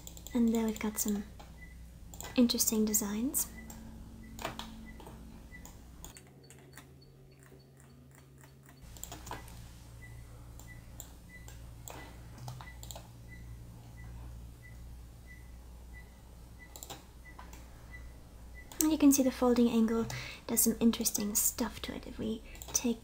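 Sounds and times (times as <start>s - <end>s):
computer mouse and keyboard clicks: 0.0s - 2.8s, 4.3s - 9.6s, 10.6s - 13.1s, 16.6s - 17.6s, 22.5s - 23.0s
steady low hum: 0.0s - 23.0s.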